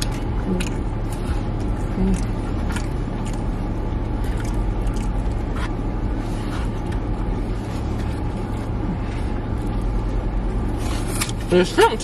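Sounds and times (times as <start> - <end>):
chewing with lip smacks: 0.0 - 8.9
low car cabin hum: 0.0 - 12.0.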